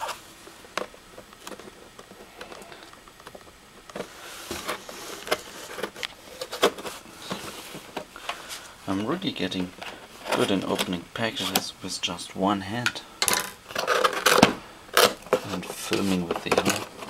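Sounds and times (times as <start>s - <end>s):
cardboard flaps rustling: 14.0s - 17.0s.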